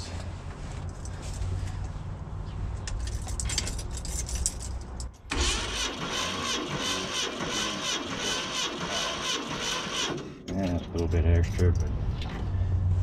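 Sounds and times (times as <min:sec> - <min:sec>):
engine starter cranking: 0:05.3 - 0:10.3.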